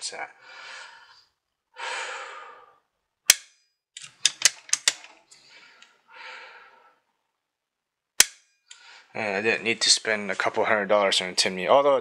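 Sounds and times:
rifle clicking: 0:03.3 - 0:05.2, 0:08.2 - 0:08.4.

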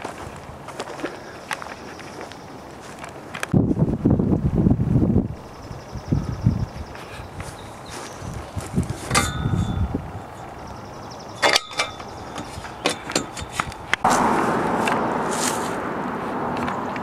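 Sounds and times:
clicks and knocks on metal post: 0:09.0 - 0:09.8, 0:11.4 - 0:14.0
steady rushing noise: 0:12.4 - 0:17.0.

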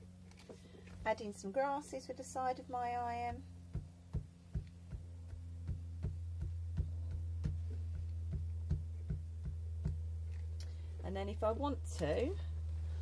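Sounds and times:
low mains hum: 0:00.0 - 0:13.0
iron tapping on waxed card: 0:03.7 - 0:10.2.

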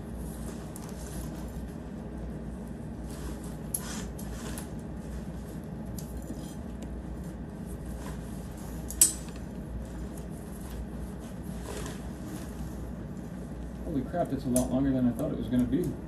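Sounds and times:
steady low hum: 0:00.0 - 0:16.0
tent fabric rustling: 0:09.9 - 0:12.9.

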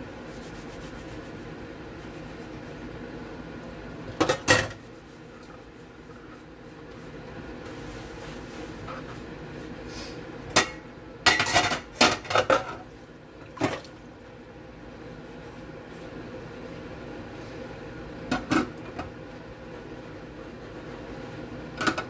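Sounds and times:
dishes clattering in sink: 0:04.1 - 0:04.8, 0:10.5 - 0:12.8, 0:18.3 - 0:19.0, 0:21.8 - 0:22.0.

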